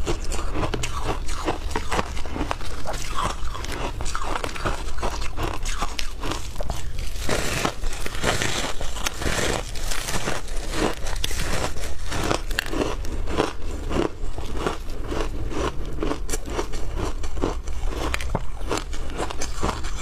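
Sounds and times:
crunching frozen ice: 0:00.0 - 0:20.0.

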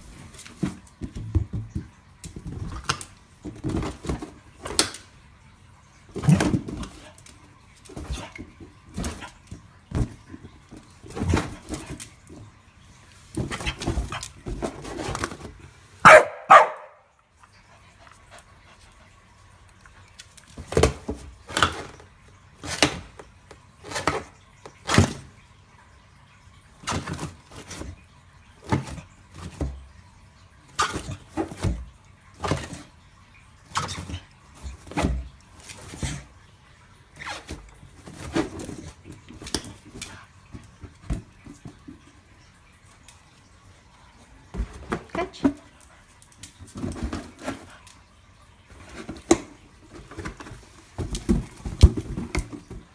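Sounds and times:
dog barking: 0:16.0 - 0:17.1.

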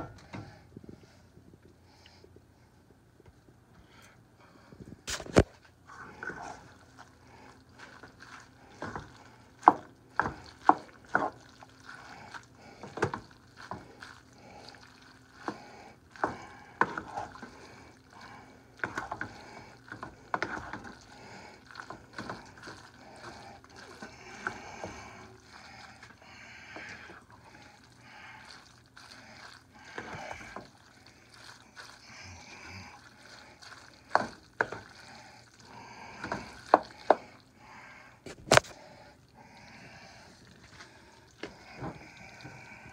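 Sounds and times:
wet stirring of noodles: 0:03.9 - 0:42.9
wooden spatula scraping pan: 0:05.9 - 0:07.0, 0:07.7 - 0:14.0, 0:15.3 - 0:17.6, 0:18.8 - 0:27.2, 0:31.8 - 0:35.0.

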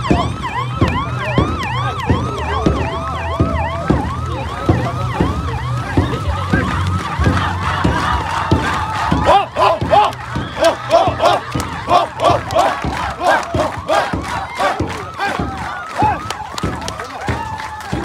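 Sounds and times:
electronic siren yelping: 0:00.0 - 0:18.0.

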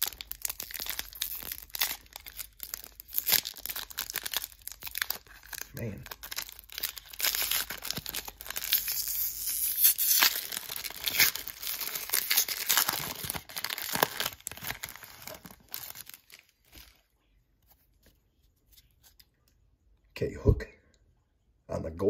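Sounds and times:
wrapper tearing and crinkling: 0:00.0 - 0:17.0.

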